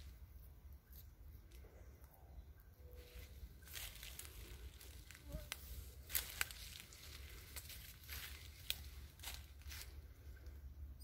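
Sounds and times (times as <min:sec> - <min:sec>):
faint crackles and rustles: 0:03.0 - 0:10.7.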